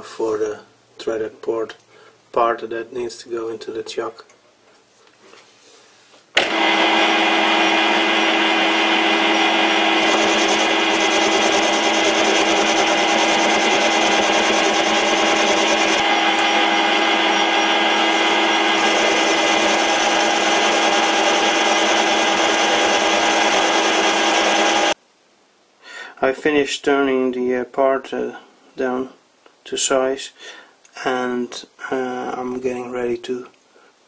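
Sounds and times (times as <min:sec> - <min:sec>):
cutting tool turning steel: 0:06.4 - 0:25.0
metal lathe whining: 0:06.4 - 0:25.0.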